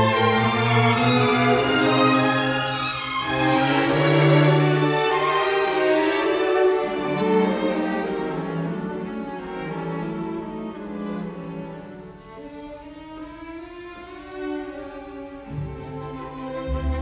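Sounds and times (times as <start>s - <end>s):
bowed strings holding slow notes: 15.5s - 17.0s
deep bass note: 16.7s - 17.0s.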